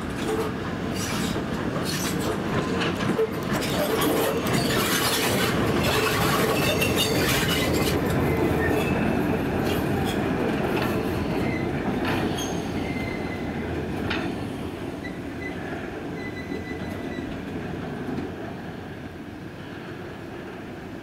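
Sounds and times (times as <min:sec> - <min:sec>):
steam locomotive rumble: 0:00.0 - 0:21.0
wheels squealing: 0:03.1 - 0:09.3.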